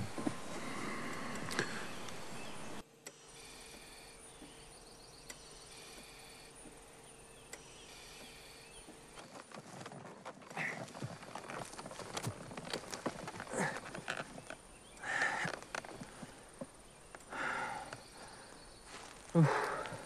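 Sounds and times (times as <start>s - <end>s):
birds or insects chirping: 0.0s - 20.0s
outdoor background noise: 0.0s - 20.0s
soft rustling clicks: 7.5s - 17.3s.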